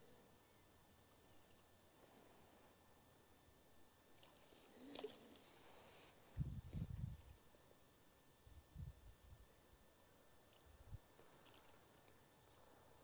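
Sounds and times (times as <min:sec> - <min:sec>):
faint high bird chirps: 0:06.4 - 0:09.6.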